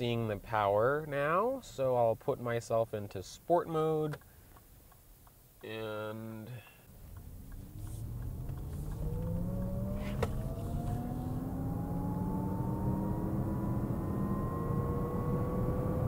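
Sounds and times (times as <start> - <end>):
road and tyre noise: 6.8 - 16.0
simulated engine tones rising in pitch: 7.2 - 16.0.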